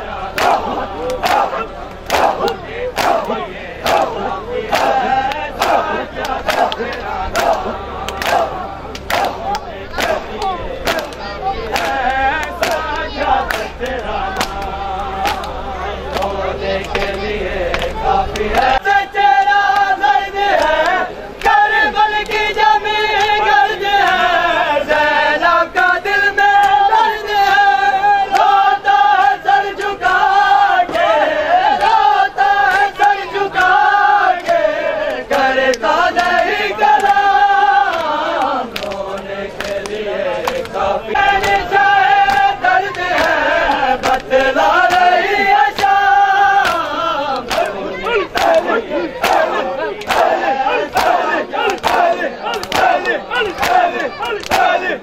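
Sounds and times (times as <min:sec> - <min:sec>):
men chanting a lament: 0:00.0 - 0:55.0
hands slapping chests: 0:00.4 - 0:18.0, 0:37.9 - 0:40.8, 0:41.4 - 0:41.6, 0:42.2 - 0:45.1, 0:46.6 - 0:50.4, 0:51.0 - 0:54.8.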